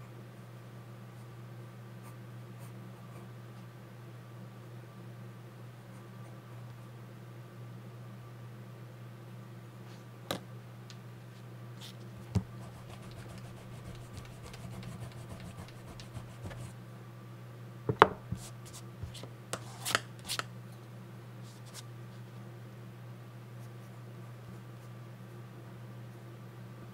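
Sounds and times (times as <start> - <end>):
steady low hum: 0.0 - 26.9
pencil taps and clicks: 12.4 - 16.3
eraser rubbing on paper: 12.6 - 16.7.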